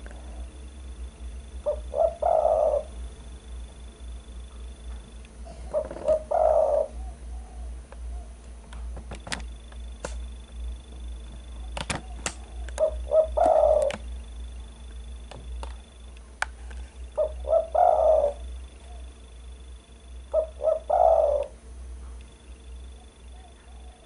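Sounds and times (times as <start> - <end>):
low steady hum: 0.0 - 24.0
dove cooing: 1.5 - 3.2, 5.4 - 8.5, 11.5 - 14.4, 17.0 - 21.6, 22.7 - 24.0.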